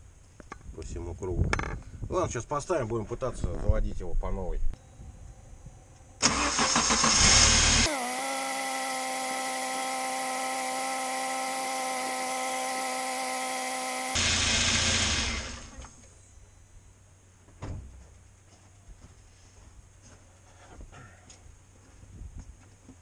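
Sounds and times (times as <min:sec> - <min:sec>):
steady hum of even tones: 0:04.7 - 0:14.2
engine cranking and running: 0:06.2 - 0:16.0.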